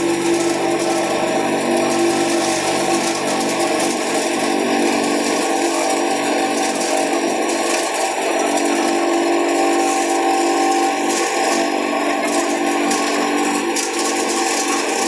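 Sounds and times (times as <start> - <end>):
grinder machine humming: 0.0 - 15.0
leaves rushing through grinder: 0.0 - 15.0.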